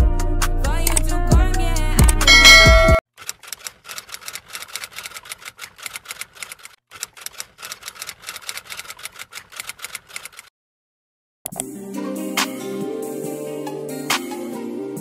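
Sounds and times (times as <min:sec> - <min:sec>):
background music: 0:00.0 - 0:03.0, 0:11.5 - 0:15.0.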